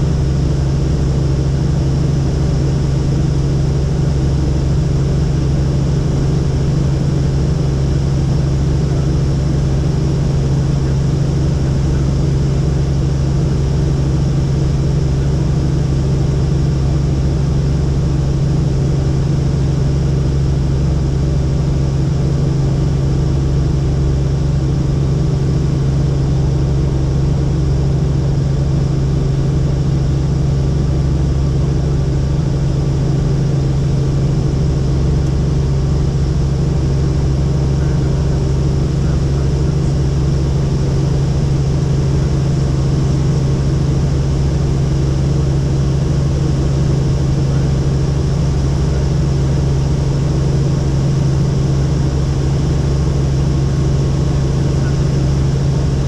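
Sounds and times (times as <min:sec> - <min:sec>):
helicopter rotor and engine drone: 0:00.0 - 0:56.0.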